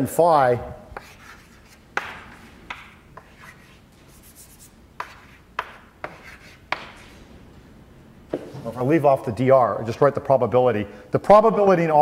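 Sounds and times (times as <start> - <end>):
chalk tapping and scraping on blackboard: 1.0 - 7.3.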